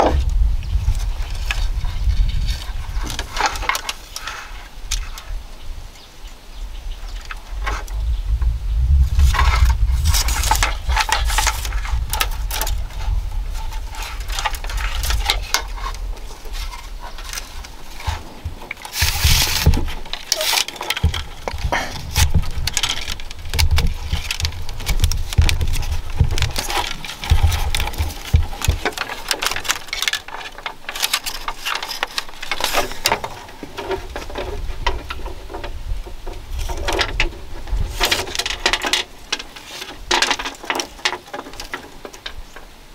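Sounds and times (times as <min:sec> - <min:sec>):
low rumble: 0:00.0 - 0:03.1, 0:07.4 - 0:18.6
bamboo strips rustling and clicking: 0:00.0 - 0:42.9.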